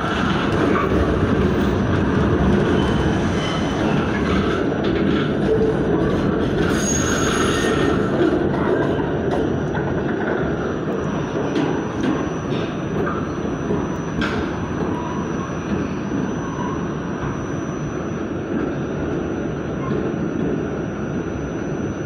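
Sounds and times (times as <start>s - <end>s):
subway train rumbling: 0.0s - 22.0s
wheels squealing: 6.6s - 8.1s
thin high whine: 10.6s - 19.8s.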